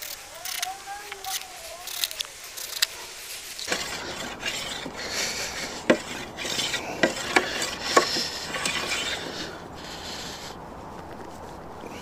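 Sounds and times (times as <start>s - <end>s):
wood scraping against wood: 0.0s - 11.7s
timber knocking on timber: 5.8s - 8.7s.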